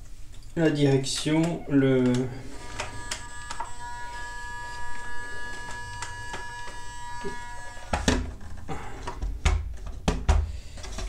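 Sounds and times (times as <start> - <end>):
high-pitched electric motor whine: 2.4 - 8.4.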